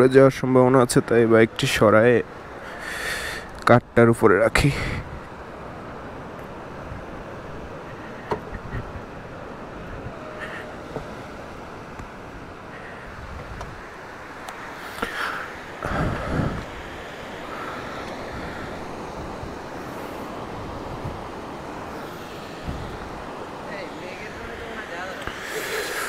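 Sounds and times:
shallow surf washing: 0.0 - 26.0
wind buffeting microphone: 4.5 - 14.4, 15.8 - 25.5.

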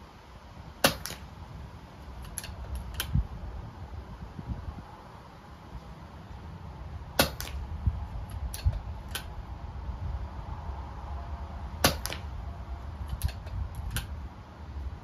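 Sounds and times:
air rifle shots: 0.8 - 1.4, 7.1 - 7.8, 11.8 - 12.4
wind rumble on microphone: 1.3 - 5.9, 6.8 - 15.0.

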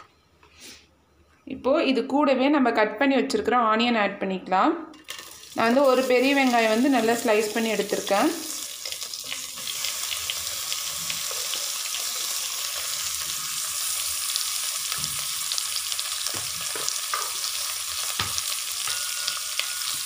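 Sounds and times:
onion sizzling in oil: 5.0 - 20.0.

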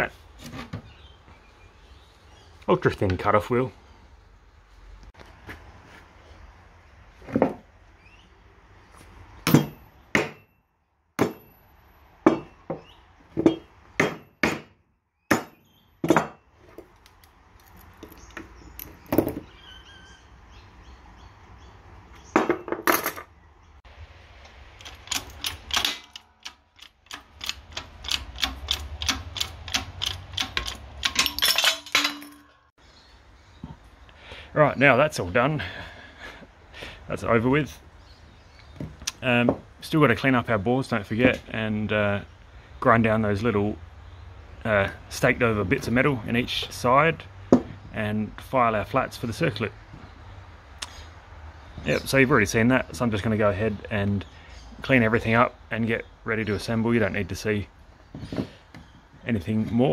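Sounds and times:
hammer striking metal punch: 9.5 - 10.5, 11.2 - 11.6, 12.2 - 12.6, 13.5 - 16.4.

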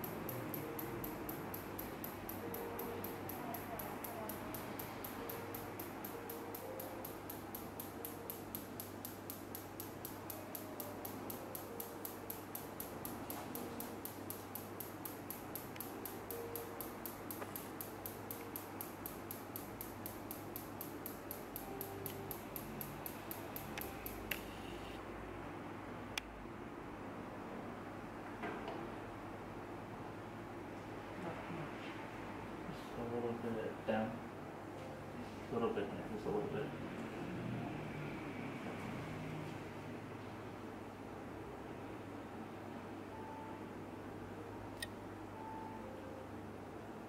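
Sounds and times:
device ticking clicks: 0.0 - 24.5.

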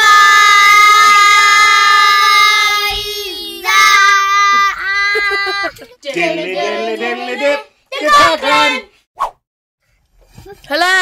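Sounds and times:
children singing together: 0.0 - 7.6.

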